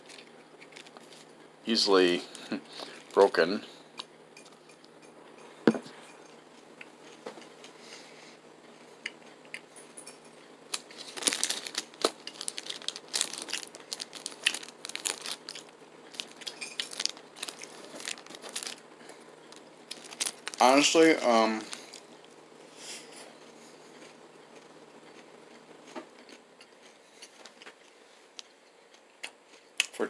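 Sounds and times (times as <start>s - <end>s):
foil wrapper crinkling: 0.0s - 1.3s, 10.7s - 22.2s
granola bar chewing: 10.8s - 20.7s.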